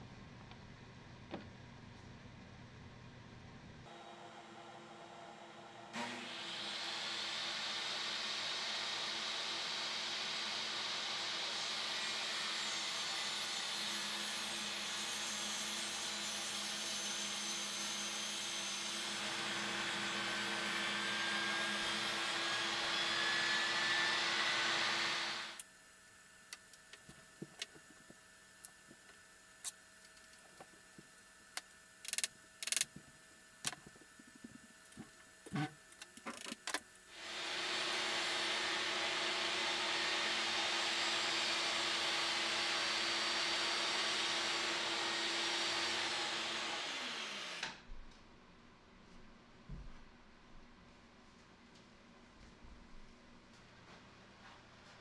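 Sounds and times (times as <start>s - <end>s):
table saw cutting board: 3.9s - 25.6s, 37.1s - 47.8s.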